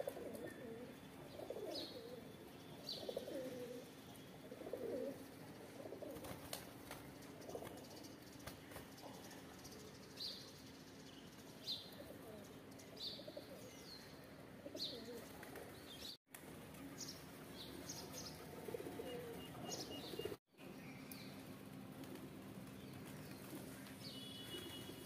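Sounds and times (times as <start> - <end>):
pigeons cooing softly: 0.0 - 6.6, 7.2 - 8.2, 11.8 - 16.1, 17.0 - 20.4
small birds chirping: 0.3 - 4.9, 6.8 - 16.2, 17.0 - 21.6, 22.6 - 25.0.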